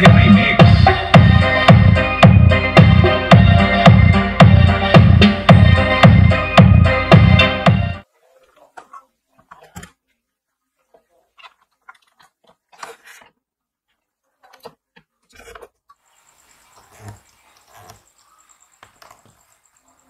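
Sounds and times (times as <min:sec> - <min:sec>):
music with heavy beat: 0:00.0 - 0:08.0.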